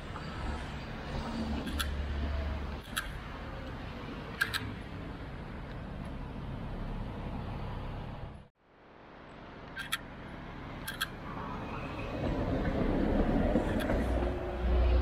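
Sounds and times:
sharp clicks: 1.6s - 2.0s, 2.7s - 4.8s, 10.8s - 11.2s
tram rumbling past: 9.8s - 15.0s.

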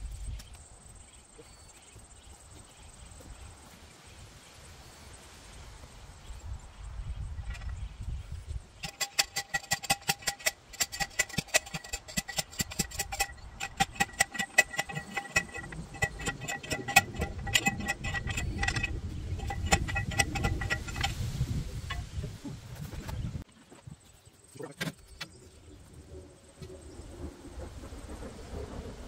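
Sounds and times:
post driver clanging on steel post: 8.8s - 21.2s.

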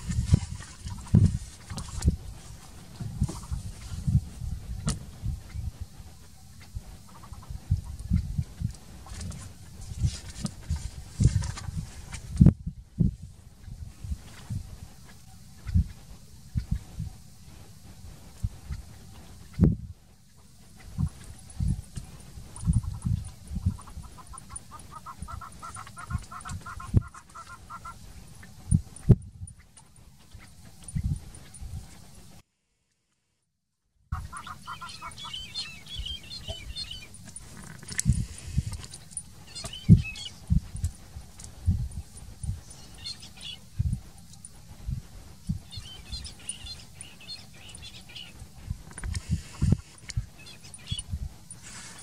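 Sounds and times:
dull low thumps: 0.0s - 6.8s, 7.5s - 20.0s, 30.8s - 31.9s, 35.9s - 42.7s, 43.6s - 46.7s
small birds chirping: 20.2s - 28.6s, 34.2s - 41.4s, 42.0s - 44.5s, 45.4s - 52.0s.

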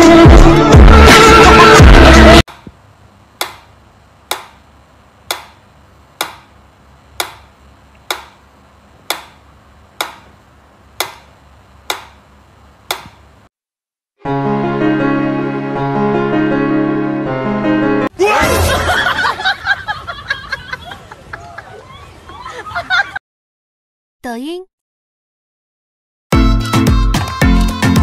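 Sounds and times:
music: 0.0s - 2.4s, 14.2s - 19.0s, 26.3s - 28.0s.

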